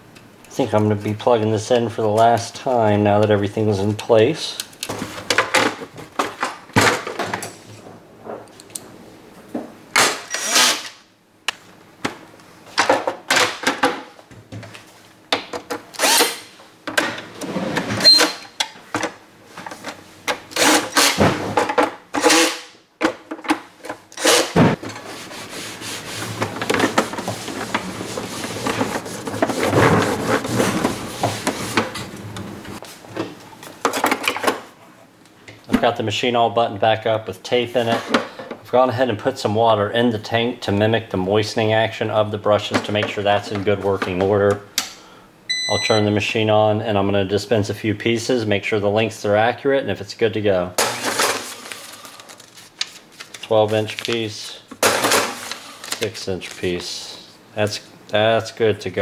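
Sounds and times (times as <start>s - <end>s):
cordless drill driving screws: 10.3s - 10.9s, 16.0s - 16.5s, 24.2s - 24.6s
steady rubbing noise: 24.8s - 32.8s.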